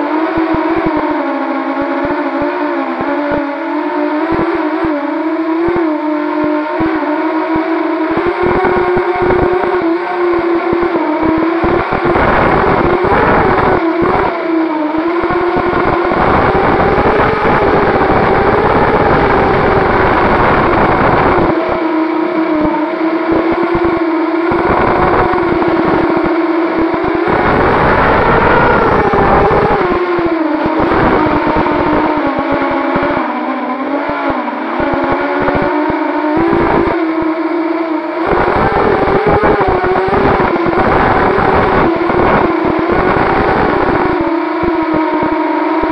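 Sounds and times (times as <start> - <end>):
quadcopter motor whine: 0.0 - 45.9
wind rumble on microphone: 8.1 - 9.9, 10.6 - 14.4, 15.0 - 21.8, 22.6 - 33.2, 34.7 - 37.1, 38.2 - 45.9.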